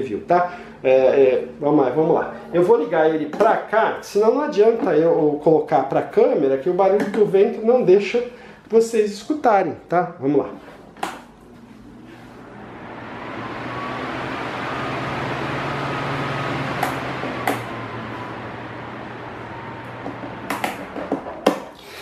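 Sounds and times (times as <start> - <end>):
fan rushing air: 0.0 - 4.8, 10.8 - 21.8
low motor hum: 11.4 - 21.5.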